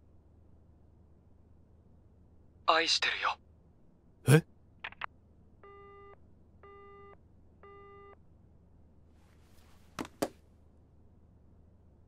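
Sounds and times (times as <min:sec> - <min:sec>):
telephone busy tone beeps: 0:05.6 - 0:08.2.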